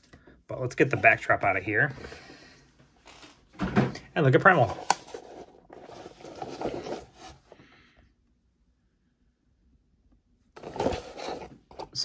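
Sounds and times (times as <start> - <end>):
cardboard rubbing and scraping: 5.1 - 7.4, 10.6 - 12.0.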